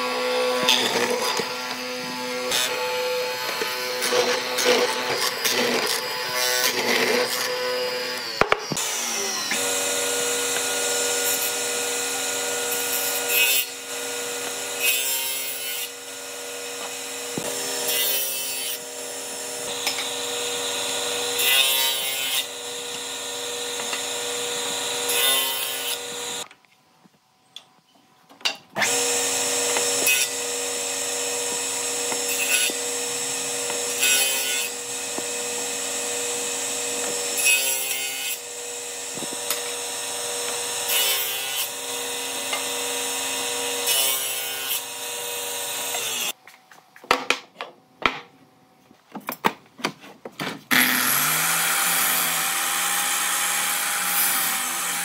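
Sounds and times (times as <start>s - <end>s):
power tool motor whining: 0.0s - 14.9s, 18.8s - 26.5s, 28.8s - 46.4s.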